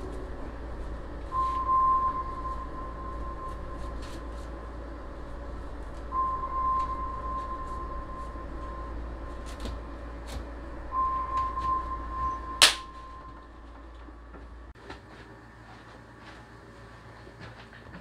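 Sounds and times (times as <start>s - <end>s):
steady high tone: 0.0s - 14.7s
high five hand slap: 12.6s - 12.9s.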